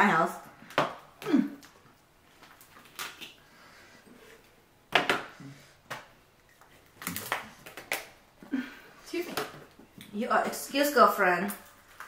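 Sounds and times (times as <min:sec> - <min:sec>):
shellfish shells cracking: 0:06.8 - 0:08.2.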